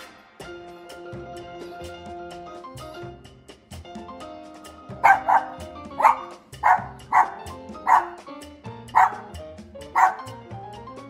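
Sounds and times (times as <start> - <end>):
background music: 0.0 - 11.0
small dog barking: 5.0 - 8.3, 8.9 - 10.4.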